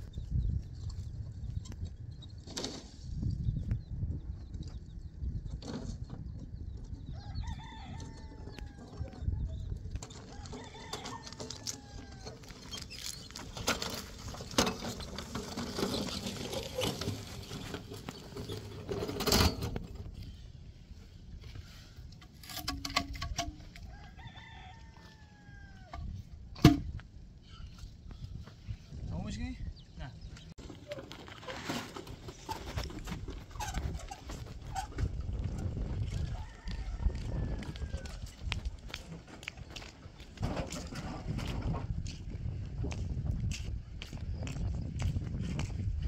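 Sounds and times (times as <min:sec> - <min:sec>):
wind rumble on microphone: 0:00.0 - 0:30.6, 0:32.1 - 0:46.0
chickens calling: 0:06.4 - 0:19.2.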